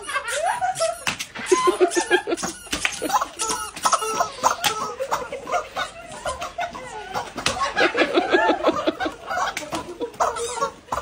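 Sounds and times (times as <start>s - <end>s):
women laughing and shrieking: 0.0s - 11.0s.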